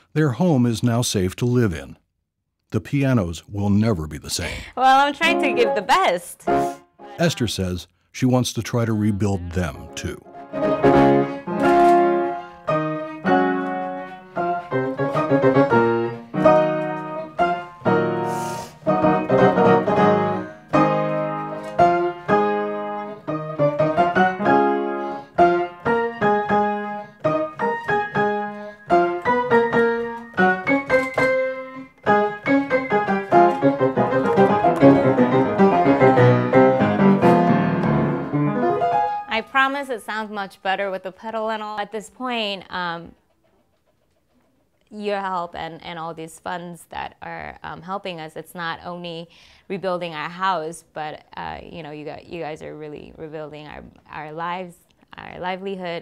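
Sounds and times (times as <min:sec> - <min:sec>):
solo grand piano: 0:10.3 - 0:39.7.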